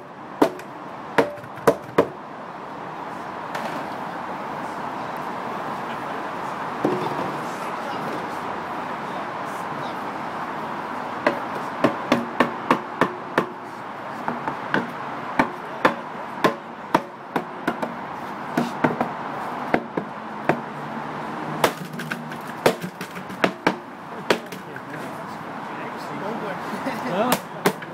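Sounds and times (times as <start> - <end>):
hammer knocking on wooden barrel: 1.2 - 2.1, 21.6 - 24.6.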